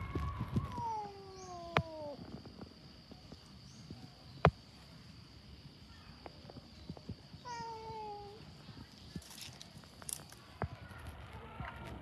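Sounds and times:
cat meowing: 0.0s - 2.2s, 7.5s - 8.4s.

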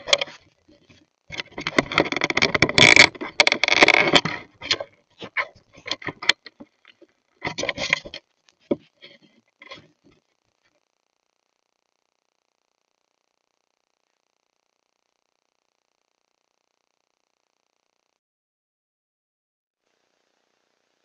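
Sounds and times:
animal scraping against camera: 0.0s - 10.2s.

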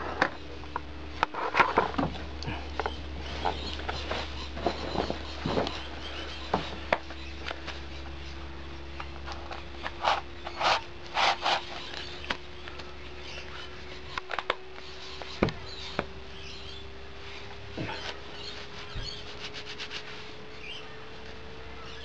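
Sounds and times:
wipes rustling from plastic tub: 3.1s - 7.0s, 17.9s - 21.6s.

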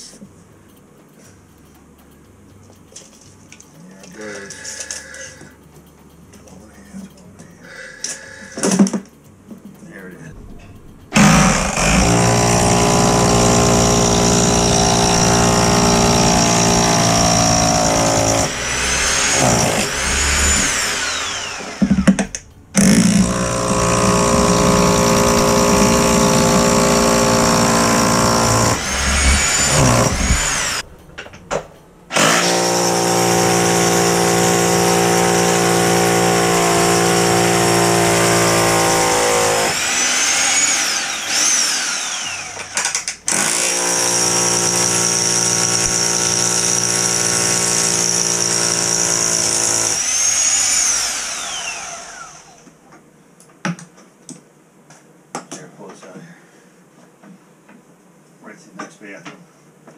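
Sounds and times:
hammer drill boring into concrete: 11.2s - 22.2s, 22.8s - 30.8s, 32.1s - 52.6s.

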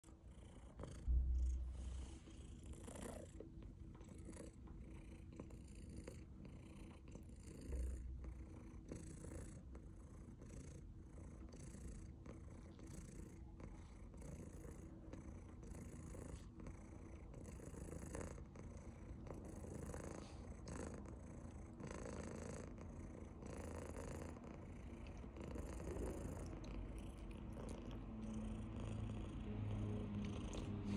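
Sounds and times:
cat purring: 0.0s - 30.9s
dull low thumps: 1.0s - 2.4s.

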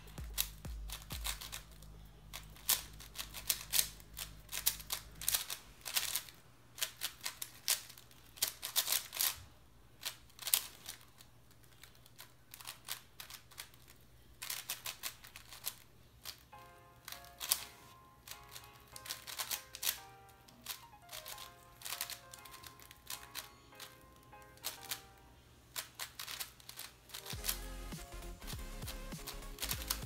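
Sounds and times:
plastic puzzle cube clicking: 0.2s - 9.4s, 10.0s - 16.4s, 17.0s - 25.0s, 25.7s - 30.0s.

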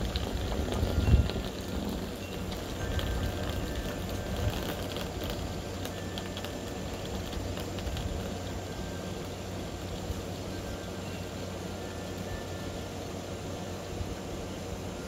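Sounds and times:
wind rumbling on microphone: 0.0s - 9.0s
faint high ticks and chirps: 0.0s - 13.2s.

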